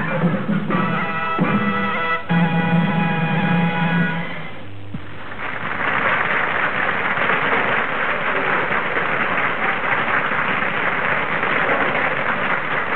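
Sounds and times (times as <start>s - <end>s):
audience applauding: 5.1s - 12.9s.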